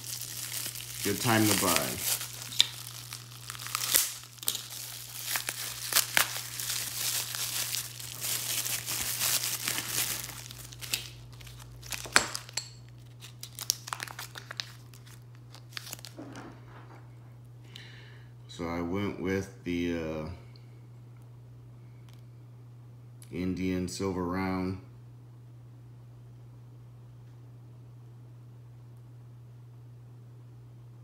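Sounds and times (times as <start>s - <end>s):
bubble wrap crinkling and tearing: 0.0s - 16.2s.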